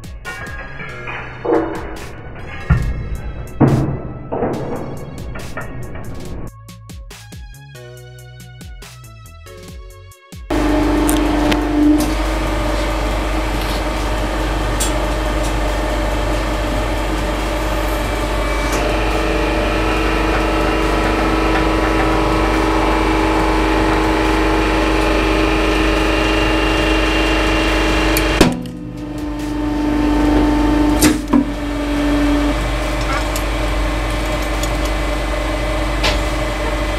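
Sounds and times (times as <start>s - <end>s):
hydraulic press pump humming: 0.0s - 6.5s, 10.5s - 36.9s.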